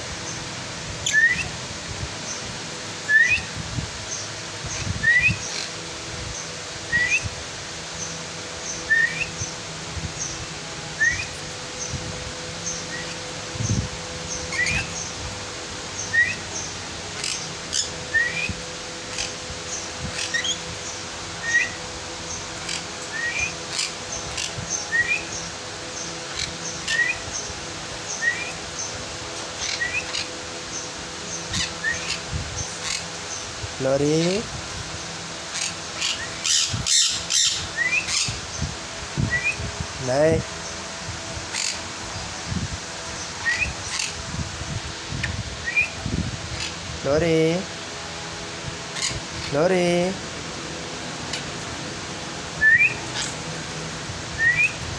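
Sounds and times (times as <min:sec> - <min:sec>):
bird whistled chirps: 0:01.0 - 0:01.6, 0:03.1 - 0:03.5, 0:05.0 - 0:05.6, 0:06.9 - 0:07.3, 0:08.7 - 0:09.5, 0:11.0 - 0:11.4, 0:14.5 - 0:15.0, 0:16.0 - 0:16.6, 0:17.2 - 0:18.6, 0:21.4 - 0:21.8, 0:23.1 - 0:23.6, 0:24.9 - 0:25.4, 0:26.9 - 0:27.2, 0:28.1 - 0:28.6, 0:31.5 - 0:32.2, 0:36.1 - 0:38.4, 0:39.2 - 0:39.7, 0:43.4 - 0:44.0, 0:45.6 - 0:46.0, 0:52.6 - 0:53.0, 0:54.4 - 0:54.8.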